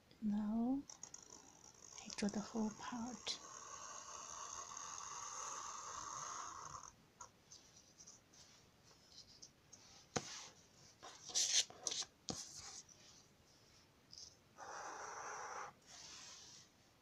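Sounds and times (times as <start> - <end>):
marker scratching on paper: 1.1 - 6.5, 10.2 - 12.9.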